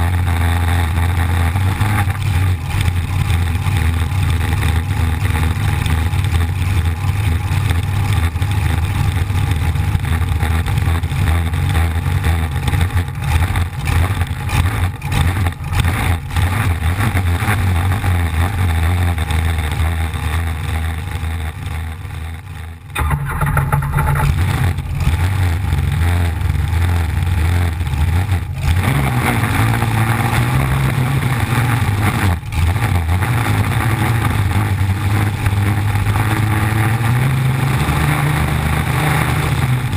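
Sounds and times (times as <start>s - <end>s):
racing boat engine: 0.0s - 39.9s.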